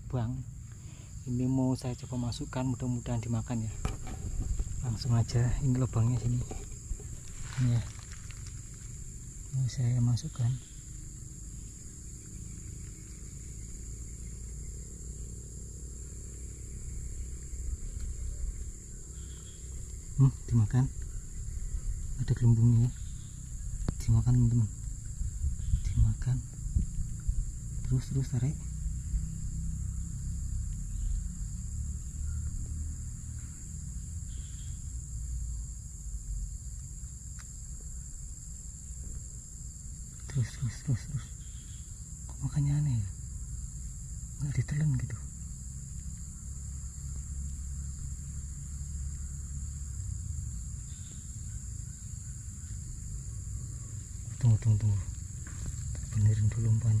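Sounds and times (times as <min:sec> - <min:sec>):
high-pitched insect drone: 0:00.0 - 0:57.0.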